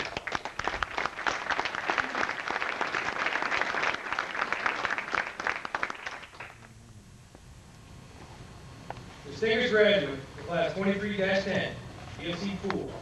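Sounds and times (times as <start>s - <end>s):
audience applauding: 0.0s - 6.7s.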